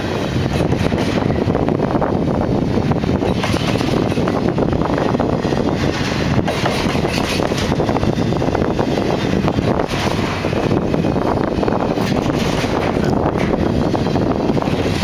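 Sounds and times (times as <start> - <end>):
steel wheels on rail: 0.0 - 15.0
train cars clanking: 0.0 - 15.0.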